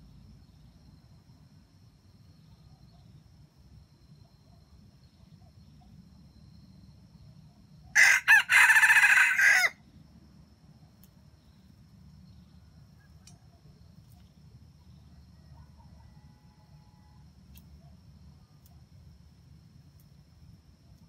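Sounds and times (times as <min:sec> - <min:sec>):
rooster crowing: 0:07.9 - 0:09.8.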